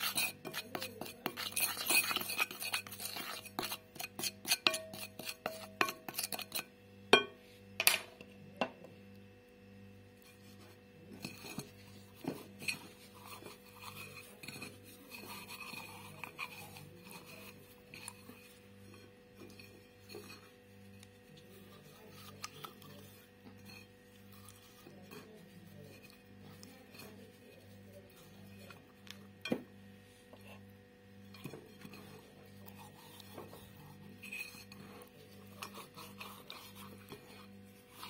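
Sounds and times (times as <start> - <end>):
fingers scraping spices: 0.0 - 6.8, 10.2 - 29.4, 31.3 - 38.0
knocks against glass bowl: 7.2 - 8.1.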